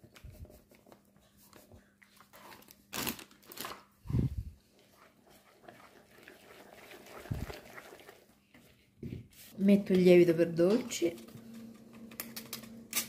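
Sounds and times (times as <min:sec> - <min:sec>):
paper bag crinkling: 0:02.5 - 0:03.8
fork stirring batter in bowl: 0:04.7 - 0:08.7.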